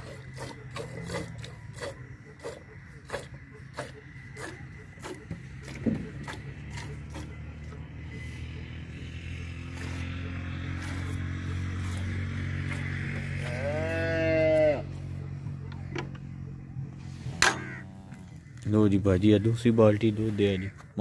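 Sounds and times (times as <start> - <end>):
cow mooing: 5.5 - 15.6, 17.4 - 18.4.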